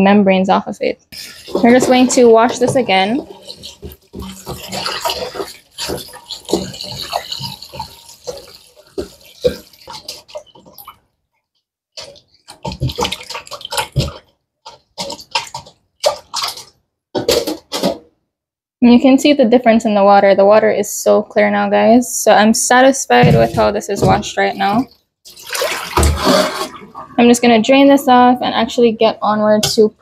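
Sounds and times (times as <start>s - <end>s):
tap water running into bowl: 1.2s - 11.0s, 23.1s - 27.2s
water splashing in bowl: 1.2s - 11.1s, 12.0s - 17.9s, 23.1s - 28.7s.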